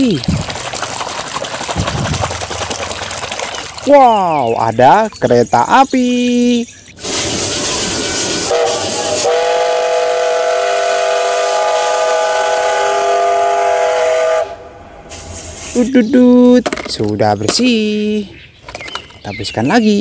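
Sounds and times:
steam whistle blasts: 7.0 - 14.8
steam locomotive hissing: 7.0 - 16.2.

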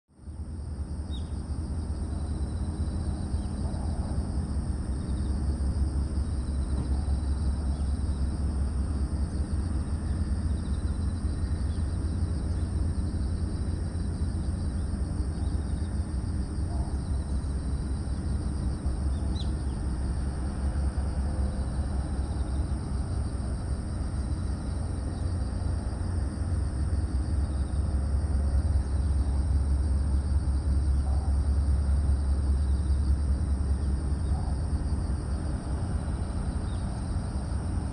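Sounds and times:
steady low rumble: 0.1 - 37.9
bird chirps: 1.1 - 1.4, 19.1 - 19.8.

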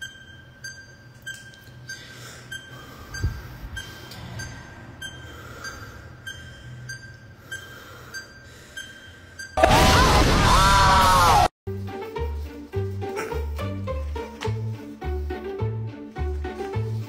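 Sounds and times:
timer beeping: 0.0 - 9.6.

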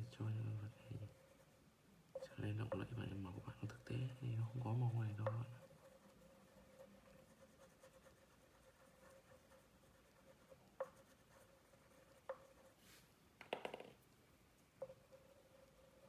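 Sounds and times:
faint steady hum: 0.0 - 16.0
light tapping: 2.2 - 5.9
crayon scratching on paper: 2.2 - 13.0, 14.8 - 16.0.

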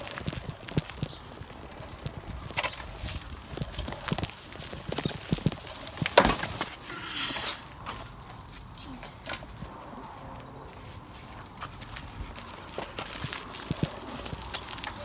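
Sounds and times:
footsteps on concrete: 0.0 - 15.0.

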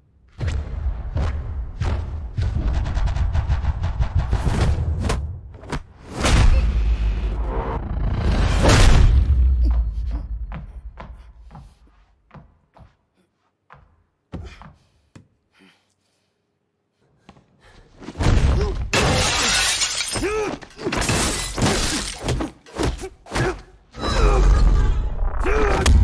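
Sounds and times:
glass pane shattering: 18.9 - 22.2.

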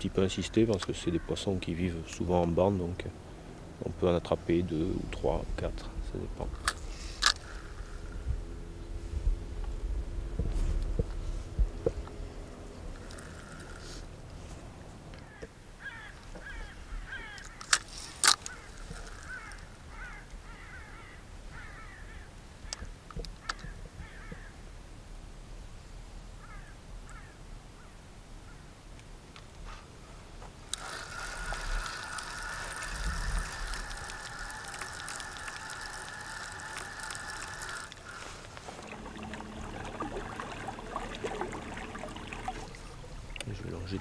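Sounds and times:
boat motor whining: 0.0 - 20.8, 30.7 - 44.0
bird calls: 15.2 - 24.6, 33.8 - 38.8.

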